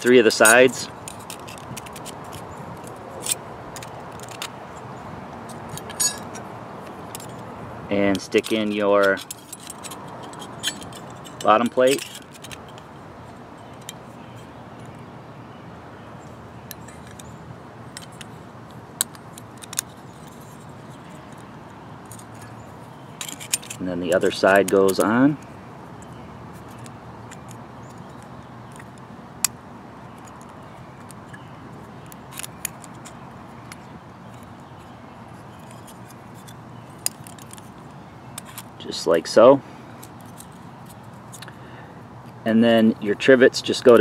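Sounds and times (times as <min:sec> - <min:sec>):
steady low background noise: 0:00.0 - 0:44.0
metal plates clicking and clinking: 0:05.7 - 0:06.4
metallic jingling clink: 0:05.7 - 0:06.4, 0:08.1 - 0:12.8.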